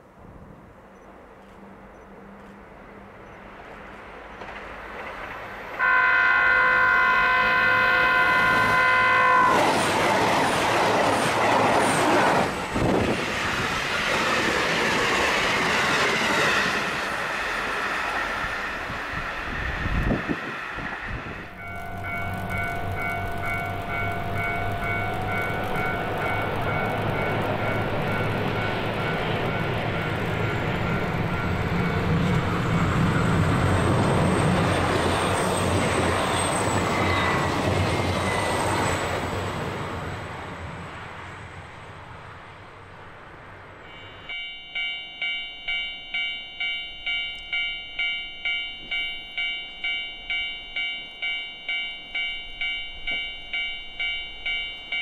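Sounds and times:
diesel train passing: 0.0 - 55.0
high squeal: 16.7 - 39.2, 43.8 - 44.5
pulsing warning tones: 21.3 - 33.4
level crossing bell ringing: 21.5 - 32.0, 43.9 - 55.0.

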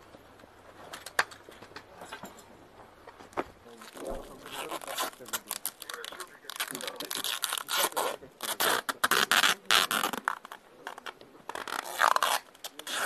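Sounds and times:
adhesive tape ripping off roll: 3.8 - 13.0.

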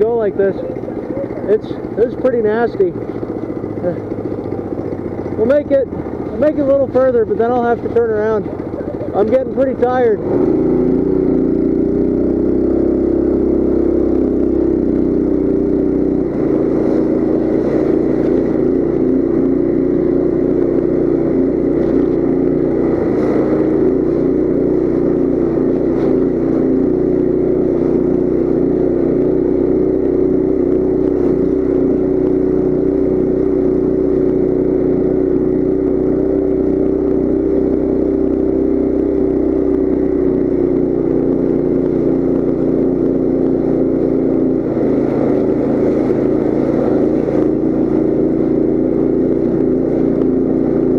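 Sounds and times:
mini bike engine running: 0.0 - 50.9.

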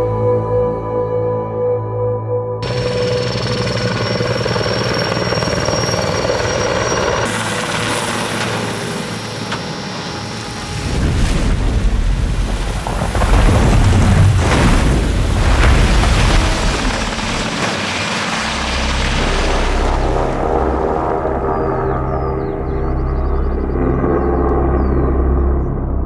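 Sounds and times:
high whine: 2.6 - 12.8
helicopter rotors and turbines: 2.6 - 26.0.

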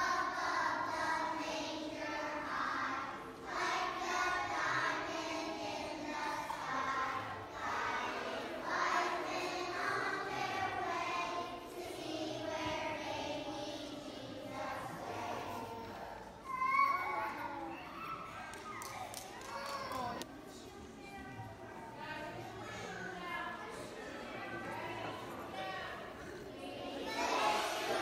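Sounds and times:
children's choir singing: 0.0 - 16.6, 23.8 - 28.0.

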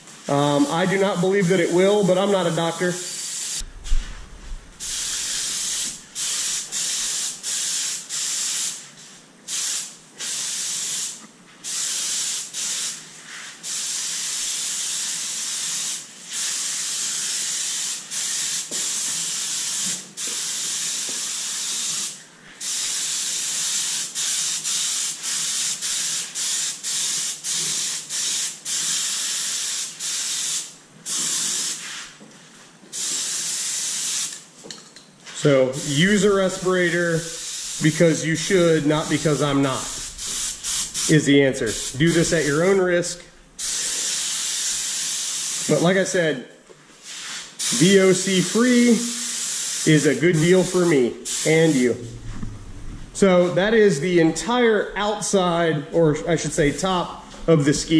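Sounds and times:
spray bottle hissing: 4.8 - 8.8, 9.6 - 32.2, 39.2 - 41.1, 47.0 - 50.0.

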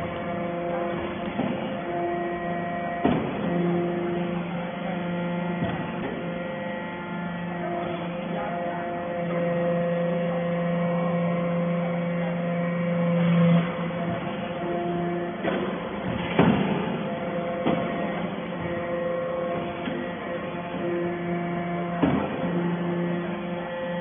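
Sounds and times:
hydraulic press motor hum: 0.0 - 24.0.

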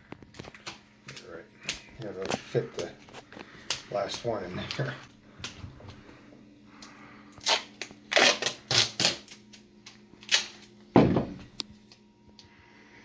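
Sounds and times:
duct tape ripping: 7.4 - 10.7.

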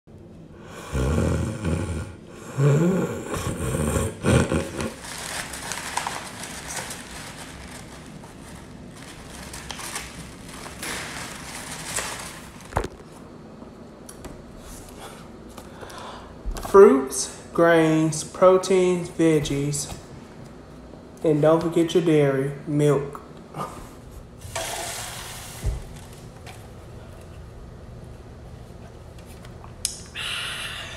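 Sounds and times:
person snoring loudly: 0.6 - 5.0.

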